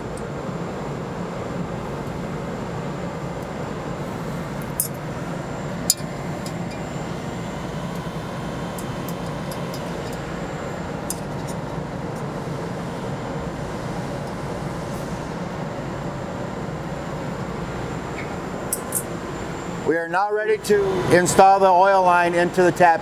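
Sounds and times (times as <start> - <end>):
low machine hum: 0.0 - 23.0
metal fitting clinking: 8.8 - 10.3.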